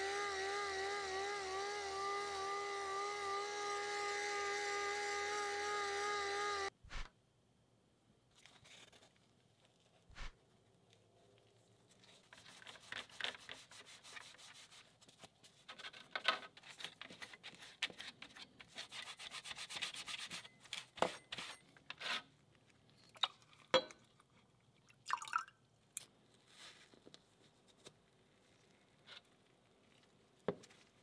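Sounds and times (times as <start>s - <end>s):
sponge scrubbing metal: 12.2s - 15.0s.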